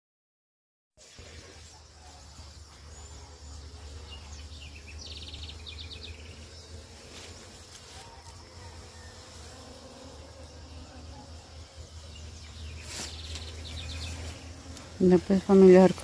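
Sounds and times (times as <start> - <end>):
honeybees buzzing: 1.0 - 16.0
bird singing rapid trill: 1.2 - 6.8, 11.7 - 14.5.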